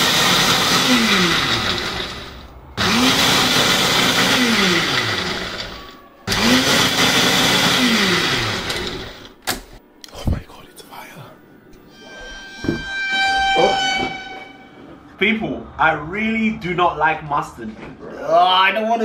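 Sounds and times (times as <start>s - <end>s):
blender whirring: 0.0s - 9.3s.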